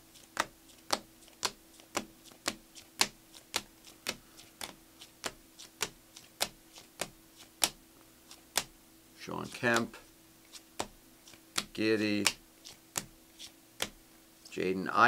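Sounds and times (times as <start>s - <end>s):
cards clicking as flipped: 9.5s - 14.0s.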